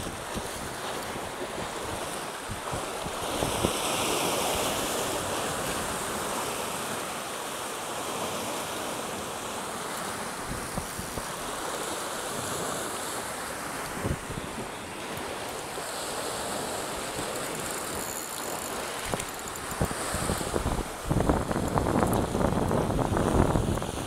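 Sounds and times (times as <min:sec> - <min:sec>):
wind on microphone: 0:00.0 - 0:06.9, 0:10.4 - 0:11.6, 0:13.7 - 0:24.0
sea surf breaking: 0:00.0 - 0:24.0.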